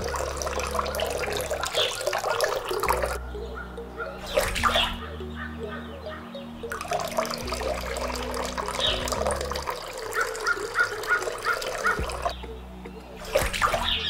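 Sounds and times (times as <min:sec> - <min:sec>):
water pouring into water: 0:00.0 - 0:03.2, 0:06.7 - 0:12.3
water splash: 0:13.2 - 0:14.0.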